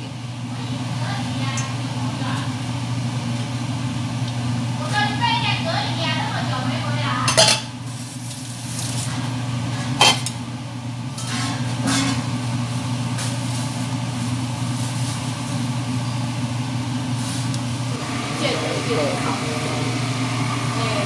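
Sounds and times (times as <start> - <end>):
metal cookware clanking: 7.3 - 7.7, 9.8 - 10.3, 11.2 - 12.3.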